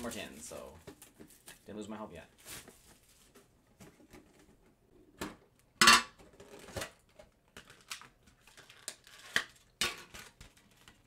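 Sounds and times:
plastic crackling: 6.3 - 11.0.

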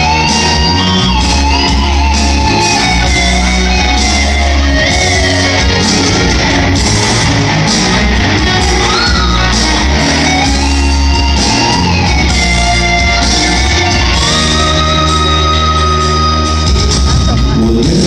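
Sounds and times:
live pop-rock band music: 0.0 - 18.0.

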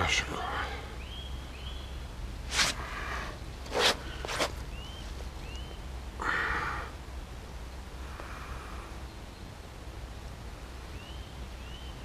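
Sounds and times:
steady low rumble: 0.0 - 11.7
rustling: 2.5 - 5.3.

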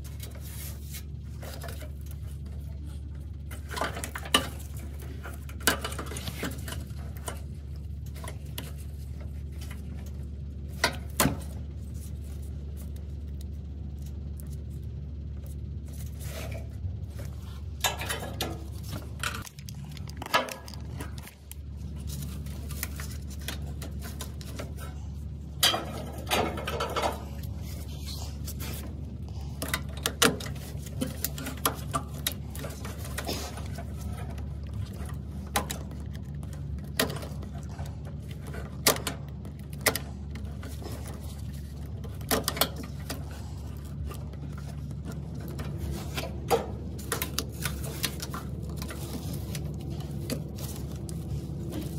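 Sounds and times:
steady low hum: 0.0 - 51.9
clicks and snaps of plastic: 19.1 - 21.7.

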